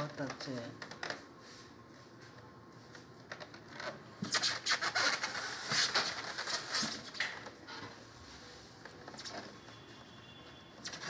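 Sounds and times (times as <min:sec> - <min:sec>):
plastic wrapping crinkling: 0:03.2 - 0:07.6.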